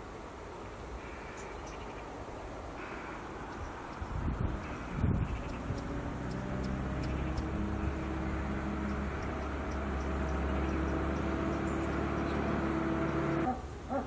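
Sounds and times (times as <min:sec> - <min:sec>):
vehicle engine humming: 0:02.8 - 0:13.7.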